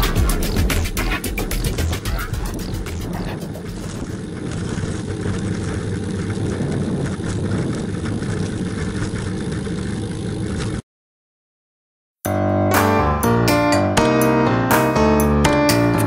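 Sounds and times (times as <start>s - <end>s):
wind and road rumble: 0.3s - 10.8s
piano music: 12.3s - 16.0s.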